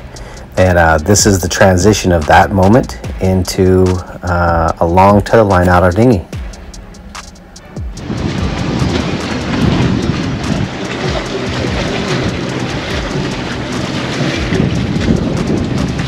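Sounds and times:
water rushing past boat: 0:04.8 - 0:16.0
wind rumbling on microphone: 0:07.8 - 0:16.0.

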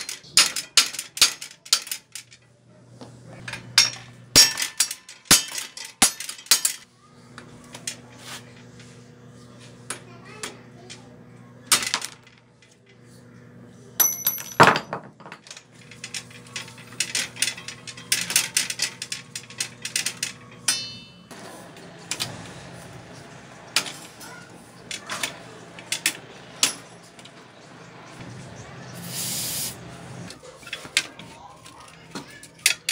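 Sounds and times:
metal rattling: 0:14.0 - 0:21.3.

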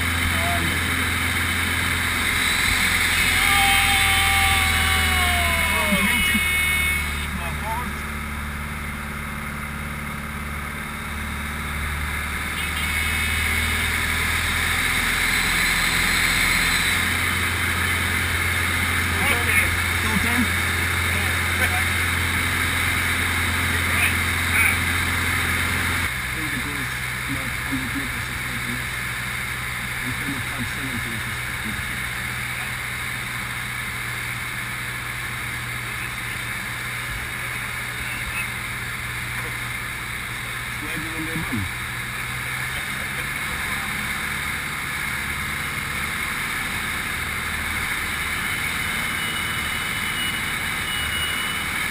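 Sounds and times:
aircraft engine droning: 0:00.0 - 0:09.0.

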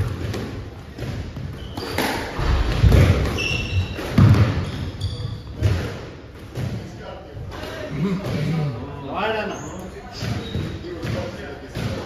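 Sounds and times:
squash ball hitting rackets and walls: 0:00.0 - 0:08.5, 0:09.9 - 0:12.0
shoes squeaking on wooden floor: 0:01.4 - 0:02.2, 0:03.2 - 0:05.6, 0:09.4 - 0:10.9.

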